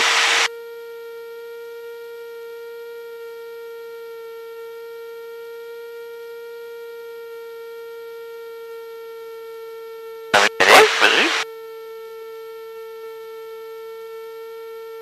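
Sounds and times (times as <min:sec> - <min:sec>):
electrical whine: 0:00.0 - 0:00.5, 0:10.4 - 0:11.4.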